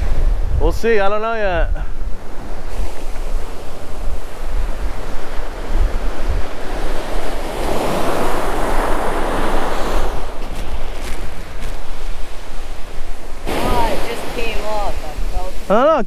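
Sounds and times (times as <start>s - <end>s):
ocean surf breaking: 0.0s - 16.0s
wind buffeting microphone: 0.0s - 16.0s.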